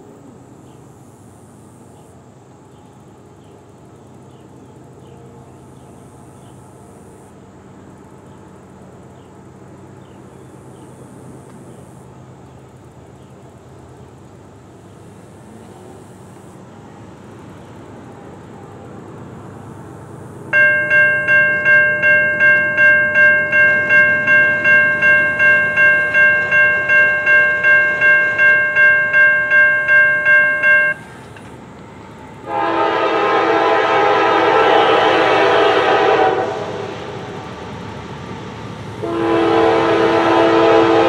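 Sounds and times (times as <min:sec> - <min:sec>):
railroad crossing bell ringing: 0:20.5 - 0:31.4
locomotive horn: 0:32.4 - 0:37.2, 0:39.0 - 0:41.0.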